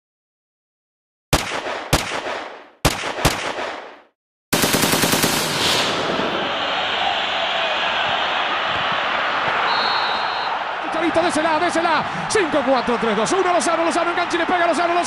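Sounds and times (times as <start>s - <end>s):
single gunshots: 1.3s - 6.2s
machine-gun burst: 4.5s - 6.1s.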